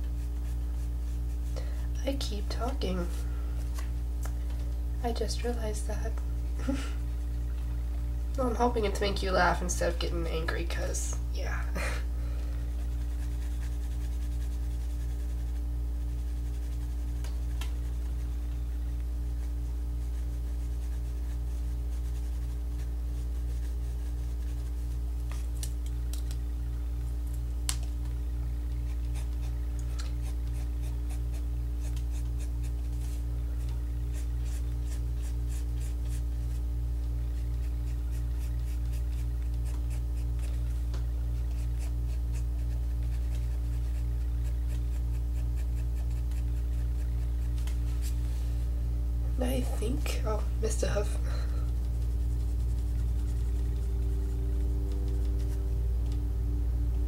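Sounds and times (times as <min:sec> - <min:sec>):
low throbbing hum: 0:00.0 - 0:57.0
pencil scratching on paper: 0:12.8 - 0:18.3, 0:19.4 - 0:25.0, 0:28.8 - 0:33.2, 0:34.1 - 0:36.6, 0:37.3 - 0:47.6, 0:51.8 - 0:54.5.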